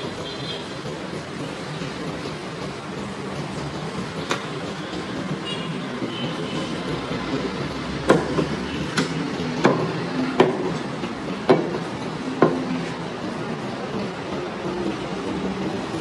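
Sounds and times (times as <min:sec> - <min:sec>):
cleaver chopping on wooden block: 0:08.1 - 0:10.8.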